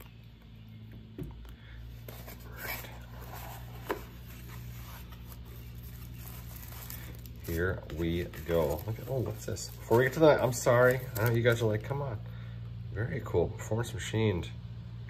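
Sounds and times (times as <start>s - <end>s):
low steady hum: 0.0s - 15.0s
scraping and rustling packaging: 1.8s - 12.0s.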